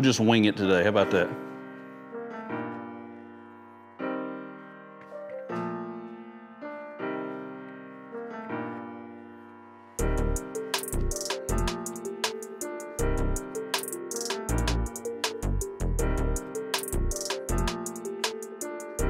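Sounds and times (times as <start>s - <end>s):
piano chords ringing: 0.0s - 19.0s
drum beat: 10.8s - 12.5s, 13.8s - 15.4s.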